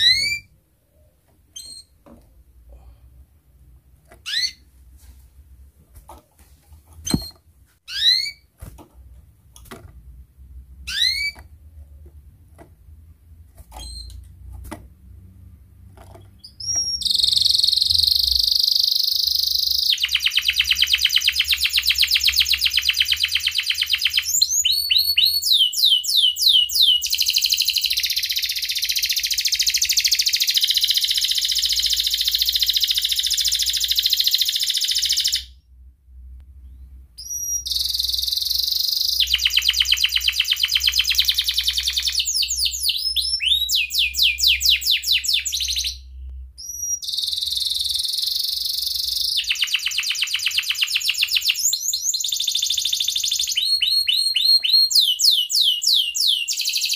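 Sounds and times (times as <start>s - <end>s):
canary singing fast trills: 0.0s - 0.5s, 4.2s - 4.7s, 7.9s - 8.5s, 10.9s - 11.4s, 16.2s - 35.6s, 36.7s - 56.9s
canary chirping: 0.0s - 2.0s, 4.1s - 4.7s, 7.0s - 8.5s, 10.8s - 11.6s, 13.7s - 14.2s, 16.0s - 35.6s, 36.6s - 56.9s.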